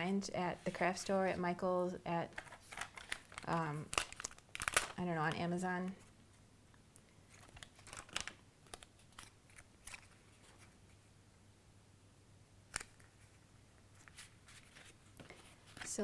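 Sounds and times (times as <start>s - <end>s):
cardstock rustling: 2.3s - 5.4s, 7.3s - 10.8s, 14.0s - 16.0s.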